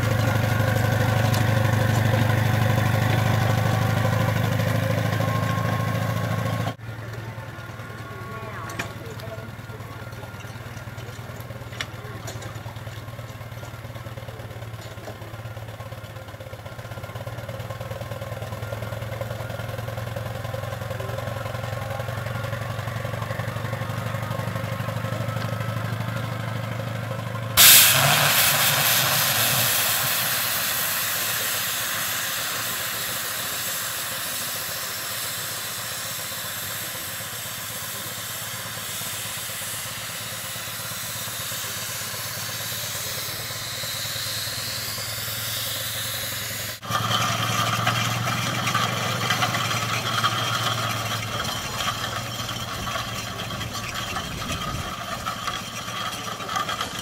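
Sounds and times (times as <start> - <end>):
loud steam hiss: 27.6 - 57.0.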